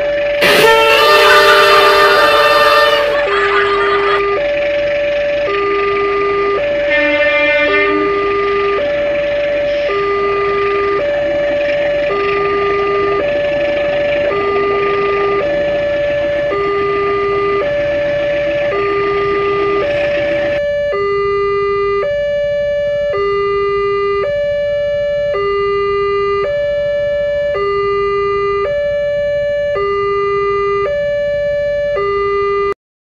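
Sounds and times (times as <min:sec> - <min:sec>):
passing train running: 0:00.0 - 0:18.9
level crossing alarm two-tone: 0:00.4 - 0:32.8.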